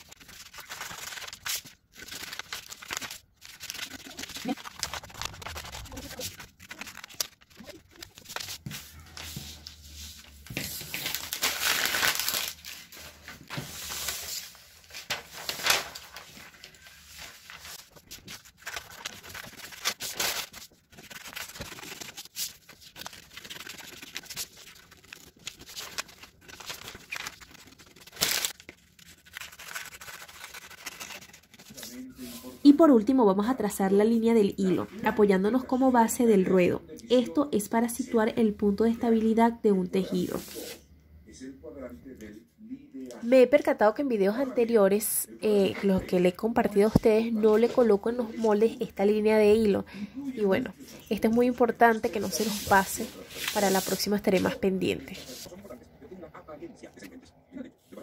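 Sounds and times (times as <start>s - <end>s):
paper rustling and crinkling: 0.0s - 32.5s, 50.8s - 55.6s
scissors cutting paper: 2.0s - 8.5s, 18.2s - 31.8s.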